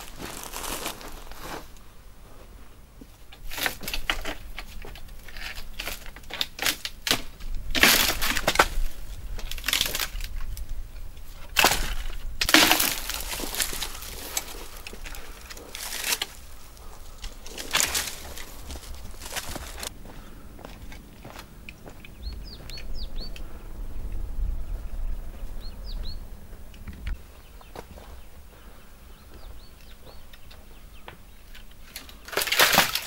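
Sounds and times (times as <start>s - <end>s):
dry branches crackling and snapping: 0.0s - 1.8s, 3.3s - 23.6s, 29.3s - 33.0s
footsteps on dry forest floor: 0.0s - 5.0s, 11.5s - 23.6s, 24.7s - 31.2s.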